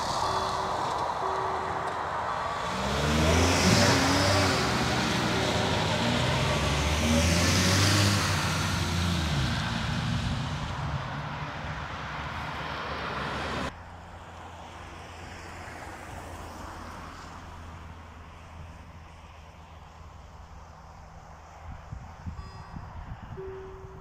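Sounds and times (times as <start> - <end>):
car driving past: 0.0 - 13.7
outdoor background noise: 0.0 - 24.0.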